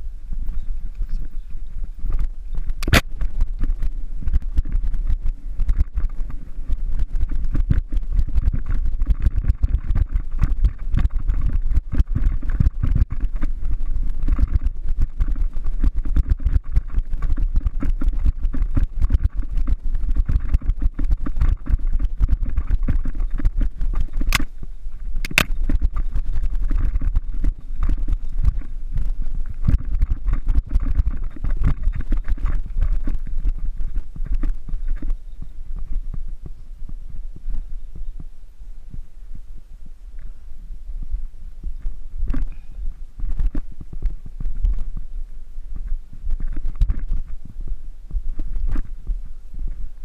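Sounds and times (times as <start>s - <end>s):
wind and tyre rumble: 0.0s - 50.0s
bike rattling and knocking: 2.1s - 24.6s, 25.2s - 35.2s
sharp clacks: 25.2s - 26.0s.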